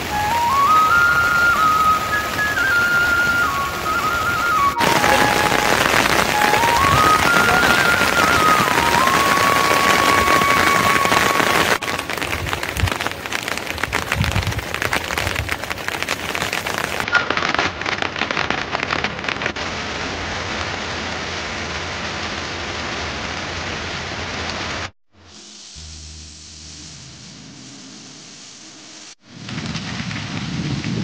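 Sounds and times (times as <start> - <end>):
thin steady whistle: 0.0 - 11.8
steady rain falling: 0.0 - 31.0.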